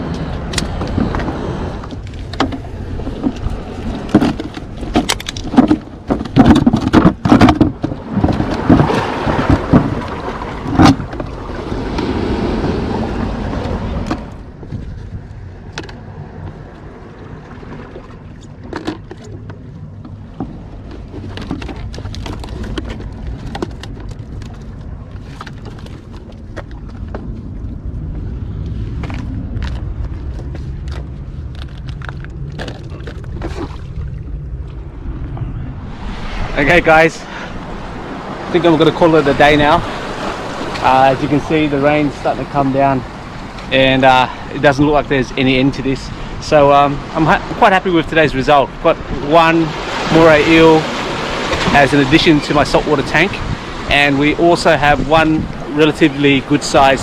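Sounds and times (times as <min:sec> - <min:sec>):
wind rumble on microphone: 0:00.0 - 0:57.0
knocks clatters and rustles: 0:00.5 - 0:11.3, 0:18.4 - 0:27.3.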